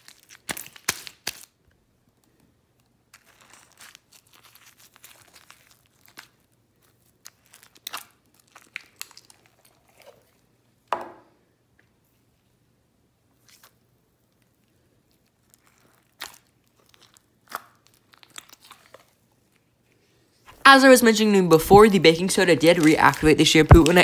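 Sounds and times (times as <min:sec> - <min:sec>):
slime squishing by hand: 0:03.1 - 0:10.5, 0:13.3 - 0:19.7, 0:20.5 - 0:24.0
sticky clicks and pops: 0:22.7 - 0:24.0.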